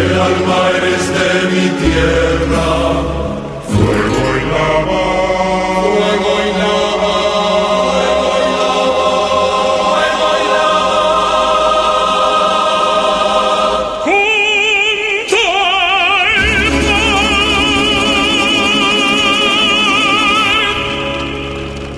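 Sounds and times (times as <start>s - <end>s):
choir chanting over drone: 0.0s - 15.1s.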